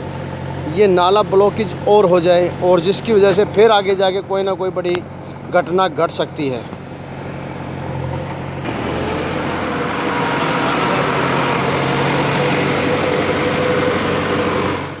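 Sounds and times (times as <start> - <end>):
engine running steadily: 0.0 - 15.0
broad rush of noise: 6.4 - 15.0.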